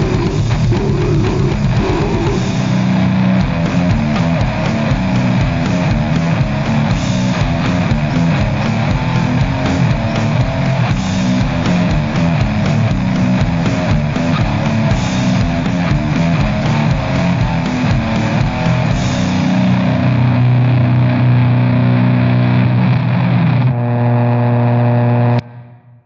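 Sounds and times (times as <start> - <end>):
fast drum beat: 0.0 - 20.0
heavy metal electric guitars: 0.0 - 25.9.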